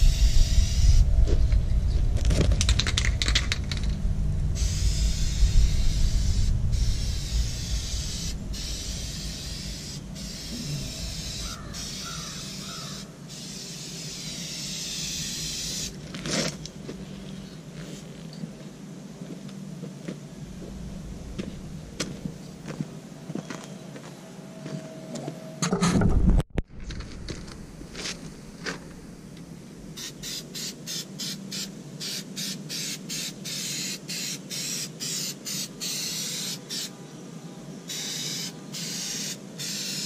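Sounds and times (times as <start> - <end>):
aerosol spray can hissing: 0.0 - 1.0, 4.6 - 16.0, 30.0 - 36.9, 37.9 - 40.0.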